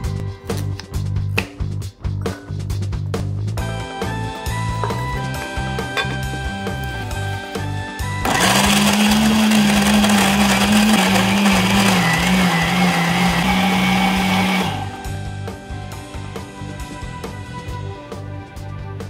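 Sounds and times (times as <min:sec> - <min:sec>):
blender motor running: 0:08.1 - 0:15.1.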